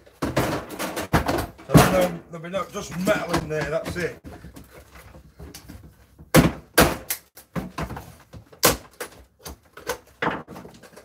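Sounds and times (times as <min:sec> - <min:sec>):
microwave parts banging on workbench: 0:00.2 - 0:02.2.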